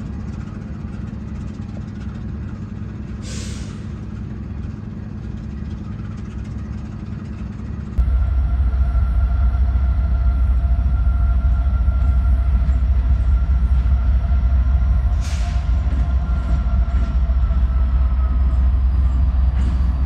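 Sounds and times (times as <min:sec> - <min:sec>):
diesel locomotive engine rumble: 0:00.0 - 0:20.0
faint steady whine: 0:08.0 - 0:20.0.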